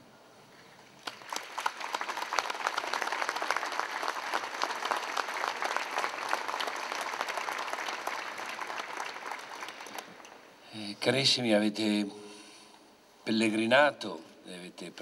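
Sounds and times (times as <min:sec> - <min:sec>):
crowd applauding: 0:01.0 - 0:10.5.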